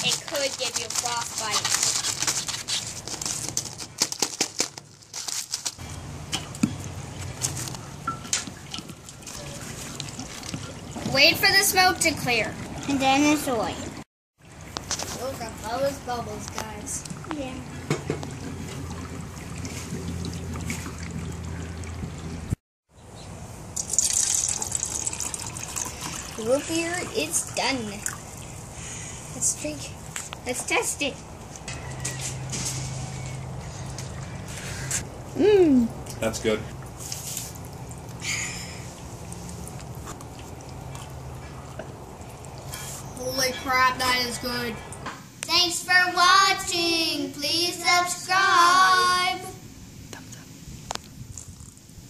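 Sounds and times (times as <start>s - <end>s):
drink pouring into cup: 23.7s - 28.6s.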